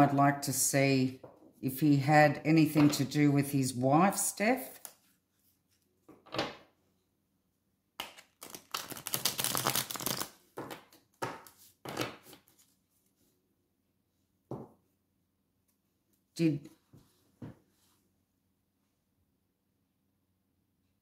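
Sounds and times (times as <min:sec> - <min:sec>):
cards being shuffled: 0:08.0 - 0:12.8.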